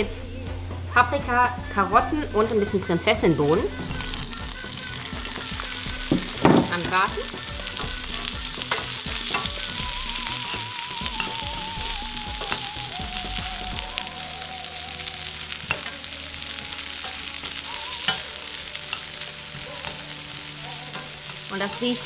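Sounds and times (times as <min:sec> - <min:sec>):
vegetables sizzling in hot oil: 0:00.0 - 0:22.0
spoon knocking against pan: 0:05.2 - 0:09.7.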